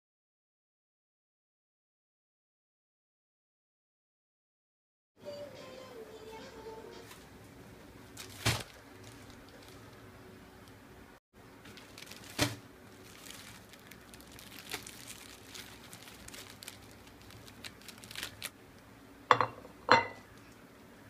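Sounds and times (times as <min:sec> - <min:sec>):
plastic bag crinkling: 0:08.0 - 0:10.8, 0:11.6 - 0:18.6
glass plate knocking on counter: 0:19.3 - 0:20.2.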